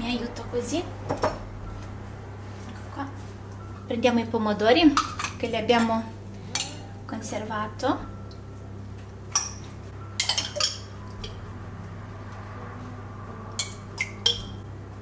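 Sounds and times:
glass clinking: 8.0s - 11.5s, 13.6s - 14.7s.

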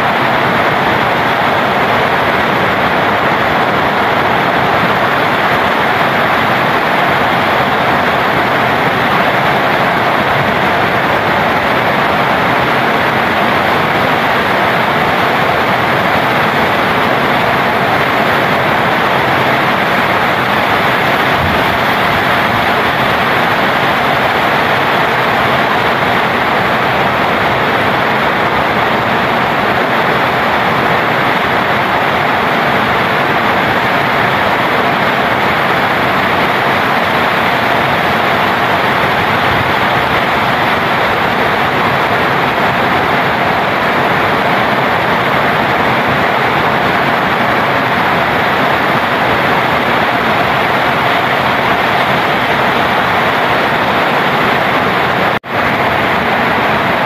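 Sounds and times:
heavy rain on foliage: 0.0s - 57.0s.

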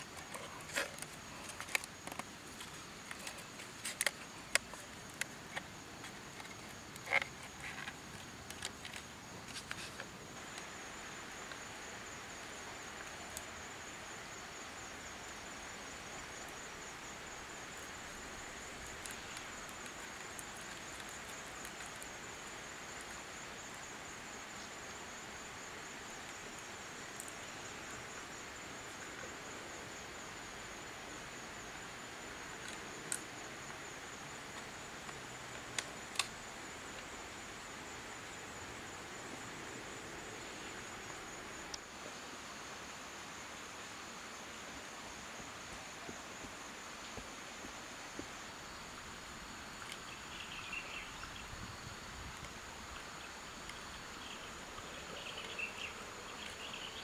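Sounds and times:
bamboo clicking and snapping: 0.0s - 10.7s, 18.4s - 22.2s, 34.5s - 37.1s
high insect trill: 0.0s - 57.0s.

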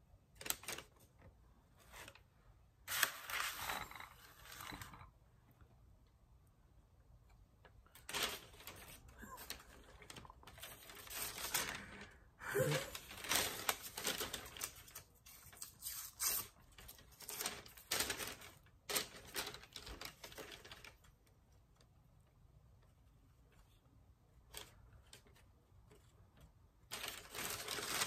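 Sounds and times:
plastic bag crinkling: 7.8s - 21.1s, 26.9s - 28.0s.

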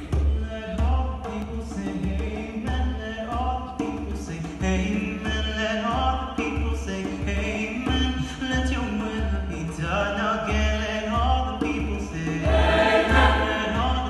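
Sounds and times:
steady low drum beat: 0.0s - 14.0s
choir singing gospel: 12.4s - 14.0s.

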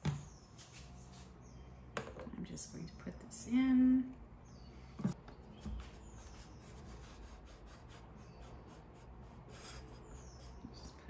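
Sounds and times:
knock on bicycle parts: 2.0s - 2.3s.

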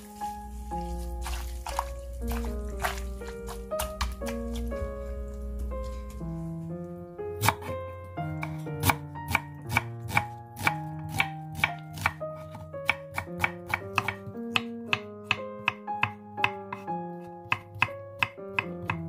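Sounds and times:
background music: 0.0s - 19.0s
knife chopping on wooden board: 1.2s - 4.7s, 7.4s - 7.7s, 8.3s - 19.0s.

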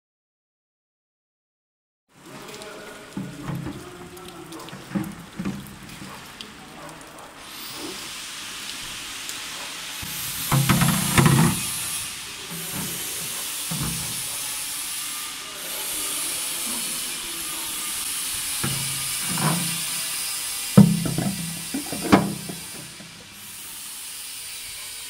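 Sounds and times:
water jets hissing: 2.2s - 25.0s
loud knocks: 10.0s - 14.3s, 18.6s - 20.1s, 20.8s - 23.4s.

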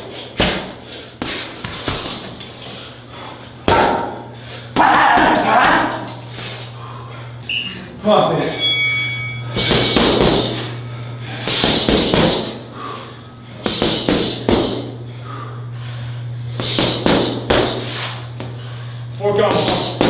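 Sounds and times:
punches and kicks on heavy bag: 0.0s - 2.4s, 3.6s - 6.0s, 9.6s - 10.6s, 11.4s - 12.6s, 13.6s - 14.9s, 16.6s - 17.9s, 19.4s - 20.0s.

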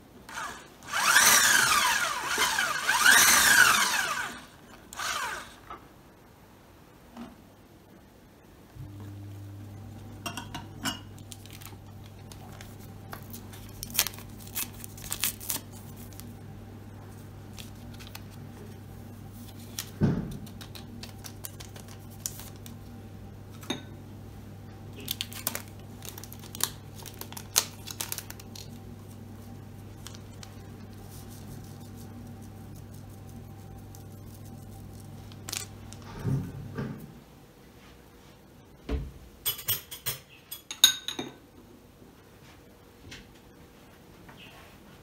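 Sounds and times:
steady low hum: 7.7s - 38.8s
paper sachets tearing and crinkling: 11.2s - 16.4s, 17.5s - 18.4s, 19.3s - 22.8s, 25.0s - 36.0s.

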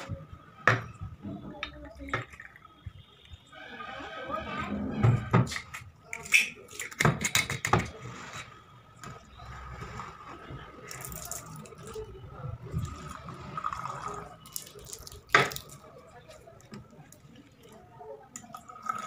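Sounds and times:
liquid trickling into glass: 10.9s - 15.9s, 17.5s - 19.0s.

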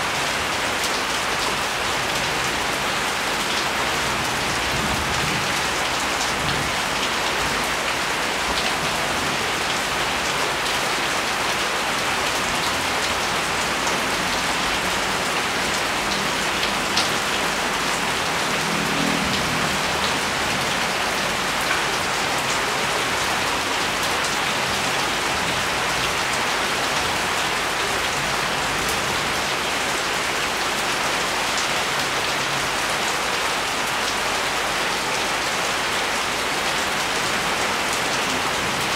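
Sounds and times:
steady rain pattering: 0.0s - 38.9s.

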